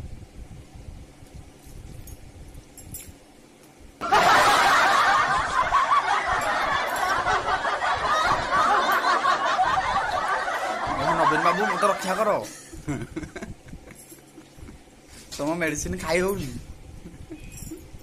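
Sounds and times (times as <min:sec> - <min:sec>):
loud laughter: 0:04.0 - 0:14.7.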